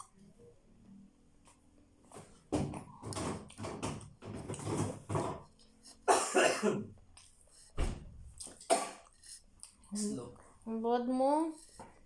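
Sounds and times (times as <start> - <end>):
woman coughing: 6.0 - 6.9, 8.6 - 9.1.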